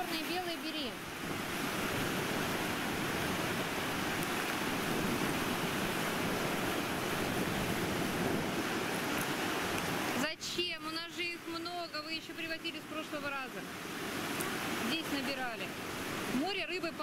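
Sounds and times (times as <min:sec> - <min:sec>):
surf breaking on rocky beach: 0:00.0 - 0:10.2.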